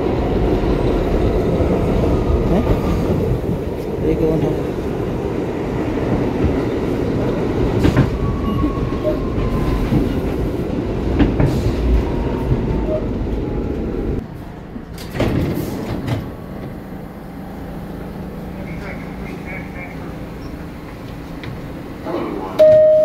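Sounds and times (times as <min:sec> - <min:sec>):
subway car rumbling on track: 0:00.0 - 0:23.0
sharp clicks from rails: 0:14.9 - 0:16.8.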